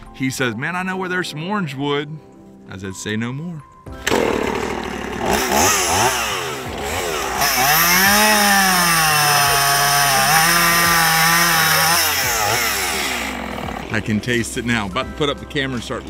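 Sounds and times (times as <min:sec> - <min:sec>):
chainsaw revving and cutting wood: 0:04.0 - 0:15.0.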